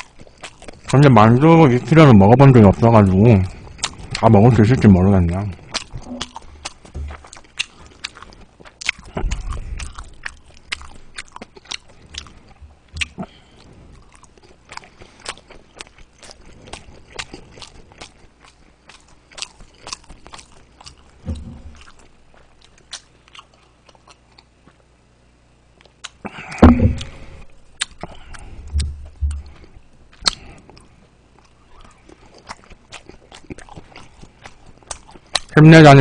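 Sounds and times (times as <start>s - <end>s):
wet chewing mouth clicks: 0.0s - 1.1s, 5.5s - 24.5s, 27.8s - 35.6s
low thuds: 21.2s - 22.3s, 26.6s - 27.6s, 28.6s - 29.7s.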